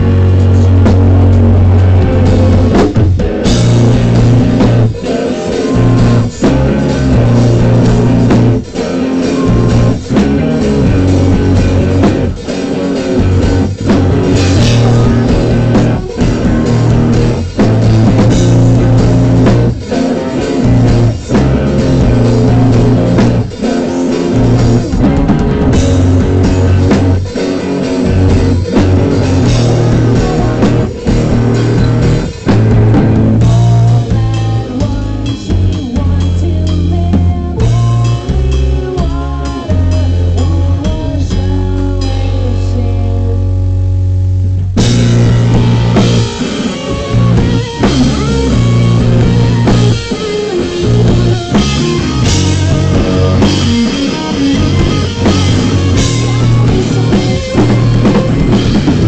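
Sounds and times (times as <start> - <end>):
bass guitar: 0.0 - 59.0
distorted electric guitar: 0.0 - 59.0
drum kit: 0.0 - 59.0
man singing: 1.6 - 3.0, 4.0 - 10.8, 14.0 - 17.5, 18.9 - 25.3, 28.4 - 31.9, 33.4 - 43.6.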